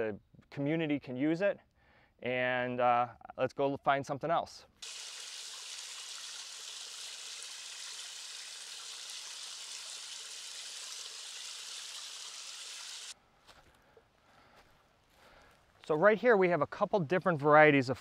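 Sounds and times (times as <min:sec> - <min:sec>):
small waterfall splashing: 0:04.8 - 0:13.2.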